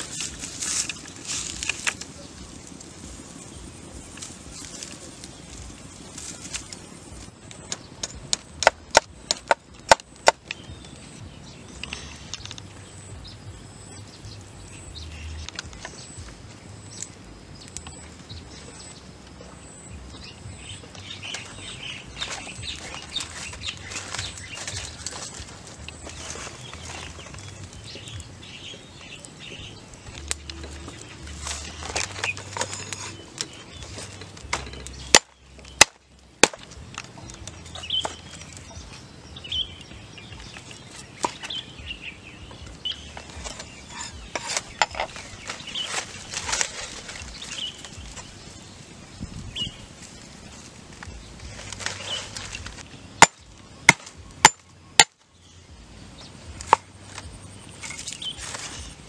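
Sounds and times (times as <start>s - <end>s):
rustling and handling noise: 0.0s - 11.1s, 20.6s - 35.8s, 42.5s - 54.2s, 56.2s - 59.0s.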